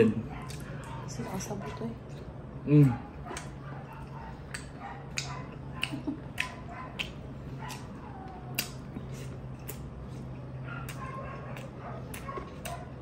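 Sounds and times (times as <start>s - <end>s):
steady low hum: 0.0s - 13.0s
wet chewing and sucking: 3.2s - 13.0s.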